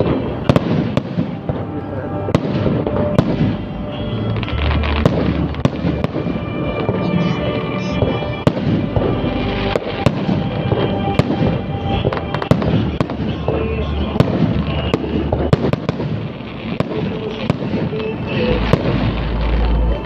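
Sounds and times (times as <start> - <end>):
continuous rumble: 0.0 - 20.0
fireworks bangs: 0.0 - 20.0.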